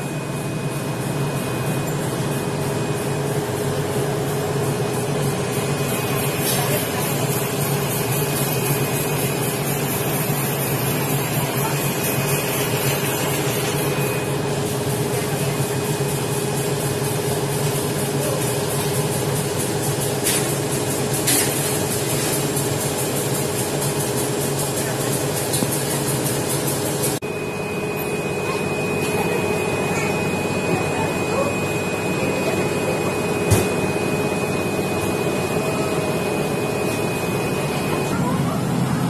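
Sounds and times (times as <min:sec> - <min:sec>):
air conditioning running: 0:00.0 - 0:39.0.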